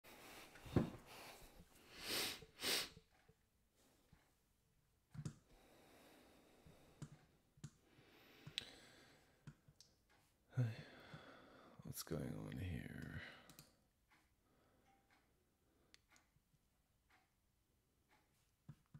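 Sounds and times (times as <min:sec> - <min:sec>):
noisy breaths through nose: 0:00.1 - 0:03.0
faint computer clicks: 0:13.0 - 0:14.3.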